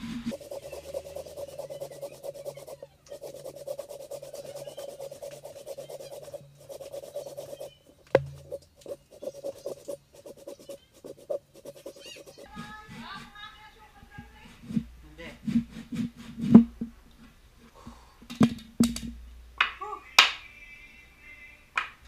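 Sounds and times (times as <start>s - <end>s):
hand saw cutting wood: 0.0s - 7.7s, 8.3s - 13.4s.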